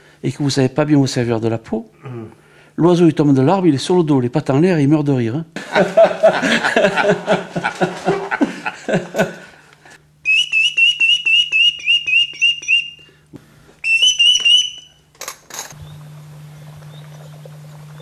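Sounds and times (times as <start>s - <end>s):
men laughing: 5.6s - 9.7s
bird call whistle chirps: 10.2s - 13.1s, 13.8s - 15.0s.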